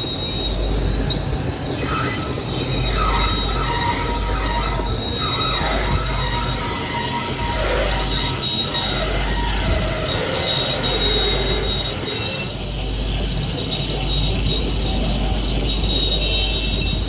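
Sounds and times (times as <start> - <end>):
lathe running with high whine: 0.0 - 13.2
lathe tool scraping steel: 1.7 - 12.6.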